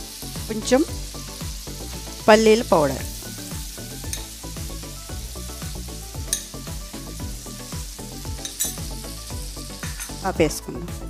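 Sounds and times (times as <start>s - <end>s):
oil sizzling in a frying pan: 0.0s - 11.0s
spoon clicking on pan: 4.1s - 4.3s, 6.3s - 6.5s, 8.4s - 8.9s.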